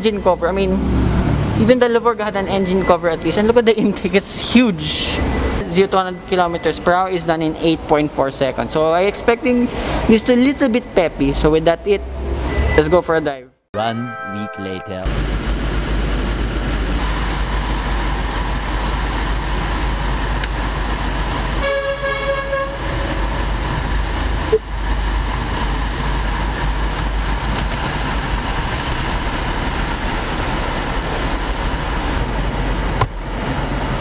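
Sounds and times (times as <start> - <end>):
horn-like tone: 21.6 - 23.2.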